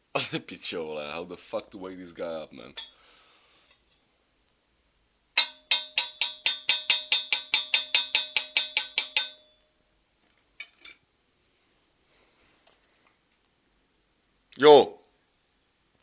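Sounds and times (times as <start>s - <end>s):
metal object clanging: 5.4s - 9.6s.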